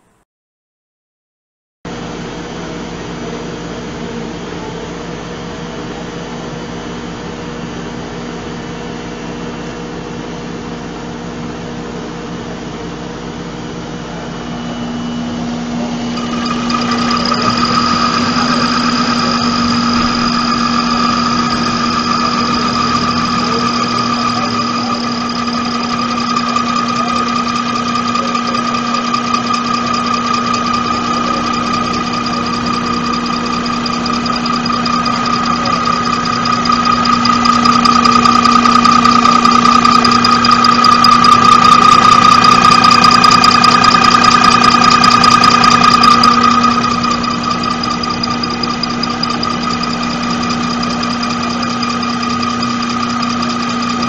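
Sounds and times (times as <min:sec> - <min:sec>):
injection pump test bench hum: 0:01.9 - 0:54.0
high steady whine: 0:14.0 - 0:54.0.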